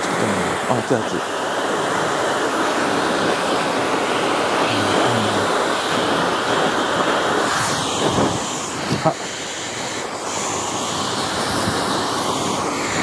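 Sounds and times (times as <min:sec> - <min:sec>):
hair dryer blowing: 0:00.0 - 0:13.0.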